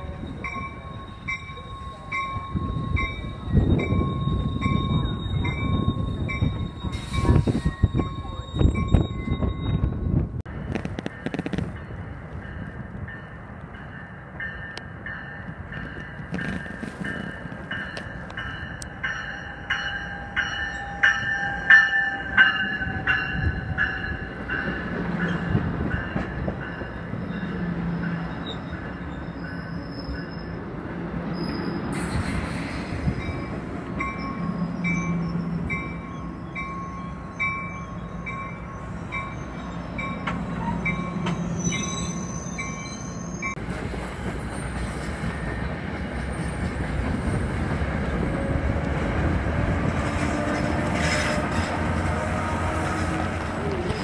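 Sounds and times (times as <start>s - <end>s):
train wheels squealing: 0.0s - 10.1s, 27.2s - 48.5s
another train rolling: 0.0s - 54.0s
stationary train rumbling: 0.0s - 54.0s
train rolling into platform: 0.0s - 54.0s.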